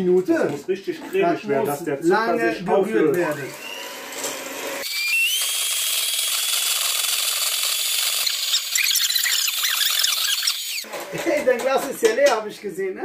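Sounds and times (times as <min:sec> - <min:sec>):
electric hand mixer whine: 0:03.4 - 0:10.9.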